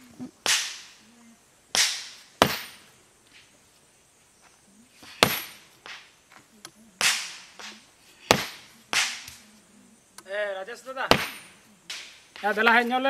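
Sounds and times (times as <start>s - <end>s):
sledgehammer striking rock: 1.8s - 2.8s, 5.1s - 6.0s, 8.2s - 9.3s, 11.1s - 12.5s.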